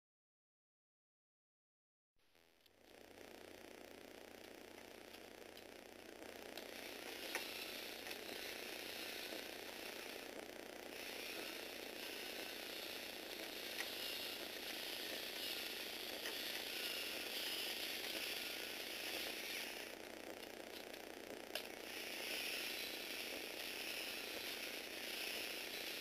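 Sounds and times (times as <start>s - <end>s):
gear train whirring and ratcheting: 2.6s - 26.0s.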